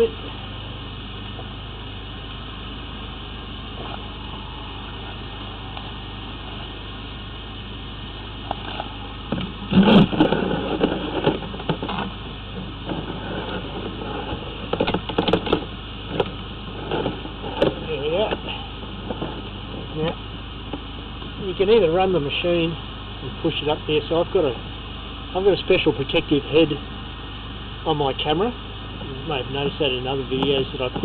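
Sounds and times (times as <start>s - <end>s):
low engine hum: 0.0s - 31.0s
hose knocking and rubbing: 8.5s - 19.9s.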